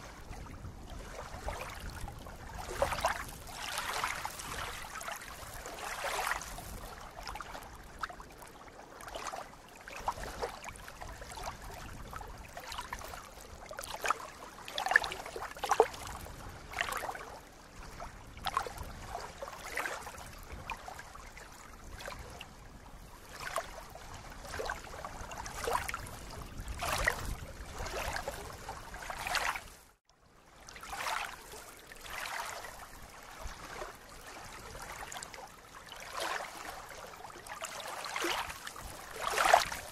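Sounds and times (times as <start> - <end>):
lake water lapping at shore: 0.0 - 39.9.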